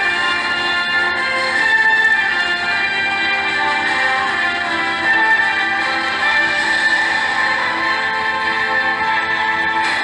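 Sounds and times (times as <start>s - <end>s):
instrumental music with held notes: 0.0s - 10.0s.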